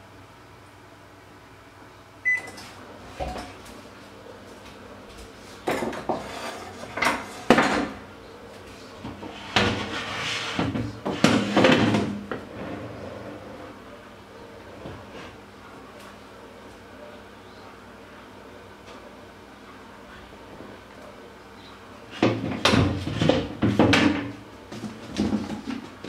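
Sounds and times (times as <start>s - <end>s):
kitchen knocks and clatters: 2.4s - 3.7s, 5.1s - 8.1s, 9.0s - 12.5s, 22.1s - 26.0s.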